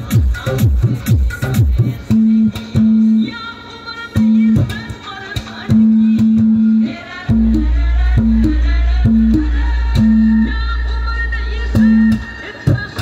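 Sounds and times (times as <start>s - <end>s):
dance music: 0.0s - 2.1s, 6.1s - 12.6s
deep bass: 5.7s - 12.4s.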